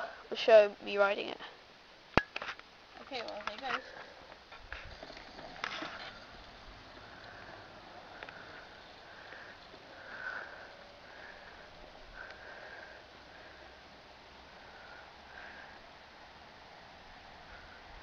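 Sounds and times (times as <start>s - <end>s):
low hiss: 0.0s - 18.0s
breathing through nose: 7.0s - 13.8s.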